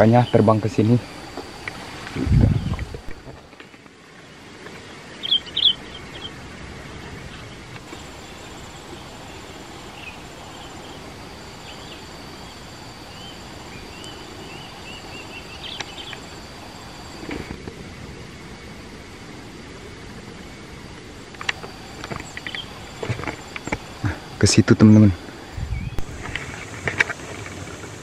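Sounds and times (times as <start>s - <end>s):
small birds chirping: 0.0s - 3.3s, 4.7s - 17.3s, 21.4s - 26.8s
background hiss: 0.0s - 28.0s
thin high tone: 7.8s - 17.6s, 21.1s - 27.7s.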